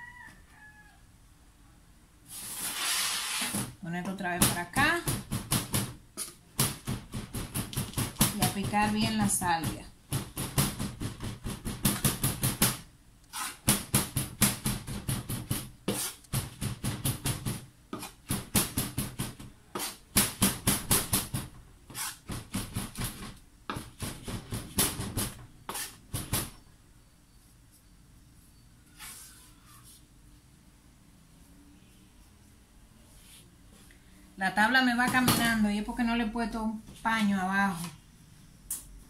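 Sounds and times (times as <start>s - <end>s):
knife chopping on wooden board: 4.4s - 26.5s.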